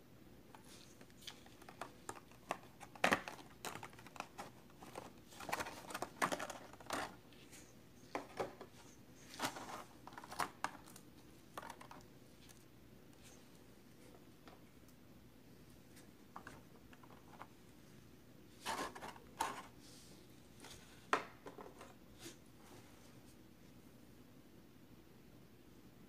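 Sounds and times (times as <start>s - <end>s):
plastic packaging crackling: 1.1s - 7.2s.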